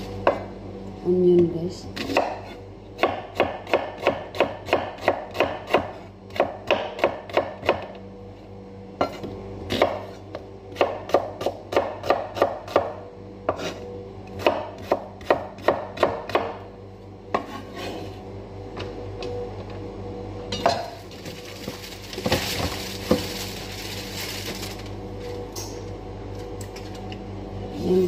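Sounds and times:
knife chopping onion on board: 2.0s - 7.9s, 9.0s - 13.8s, 14.4s - 16.6s.

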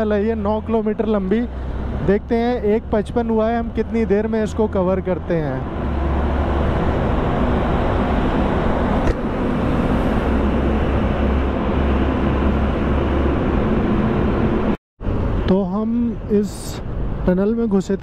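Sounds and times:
vehicle engine and road noise: 0.0s - 18.0s
wind rumbling on microphone: 5.5s - 18.0s.

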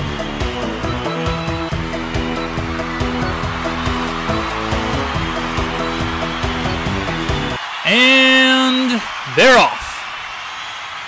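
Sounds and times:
background music with steady beat: 0.0s - 7.6s.

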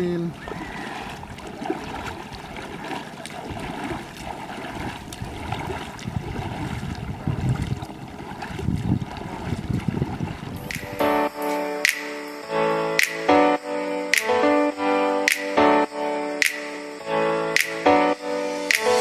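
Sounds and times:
water splashing around wading legs: 0.0s - 12.3s.

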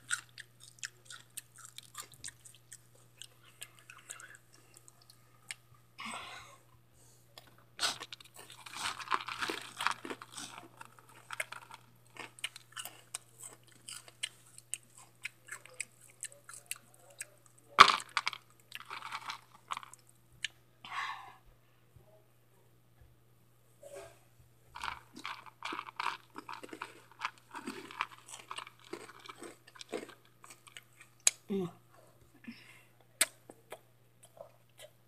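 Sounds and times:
crunchy snack chewing: 0.0s - 5.6s, 7.8s - 20.1s, 24.8s - 31.4s
faint low hum: 0.0s - 35.0s.

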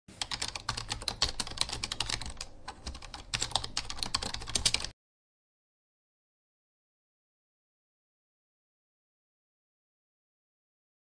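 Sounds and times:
computer keyboard typing: 0.1s - 5.0s.

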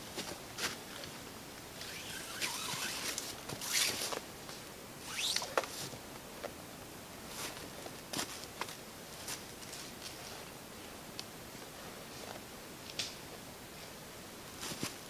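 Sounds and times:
cord sliding through hands: 1.8s - 4.2s.

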